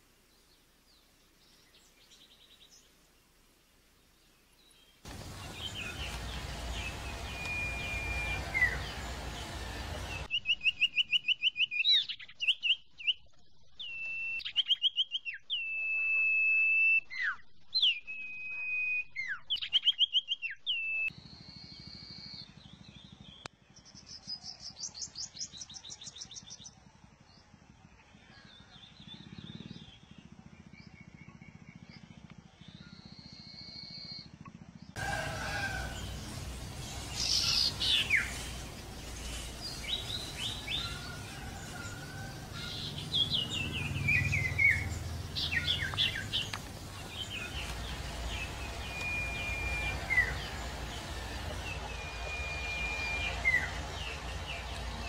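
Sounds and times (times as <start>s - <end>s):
bird chirping: 4.2s - 16.0s, 34.9s - 55.0s
hiss: 35.0s - 42.6s.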